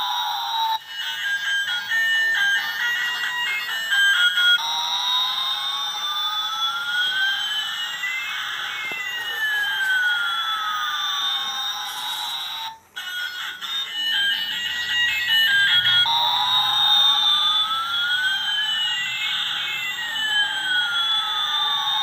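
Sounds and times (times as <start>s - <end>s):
electronic siren-like toy whine: 0.0s - 22.0s.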